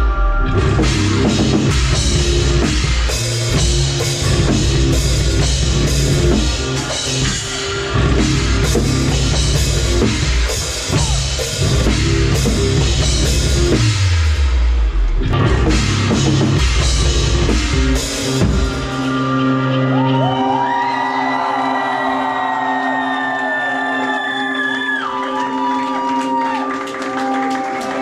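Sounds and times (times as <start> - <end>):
bass guitar: 0.0 - 20.8
drum kit beat: 0.5 - 19.5.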